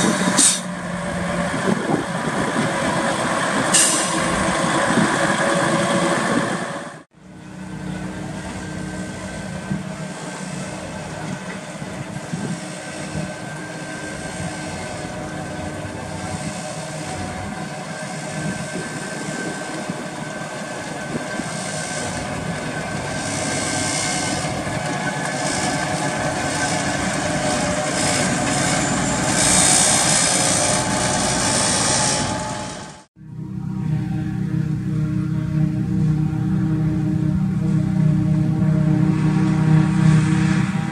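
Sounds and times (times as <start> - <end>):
tractor diesel engine under load: 0.0 - 40.9
whine and hiss of spreader: 8.3 - 32.9.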